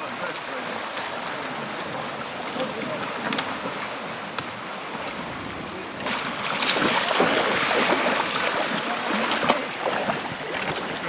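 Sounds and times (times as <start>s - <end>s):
water splashing around wading legs: 6.0s - 11.0s.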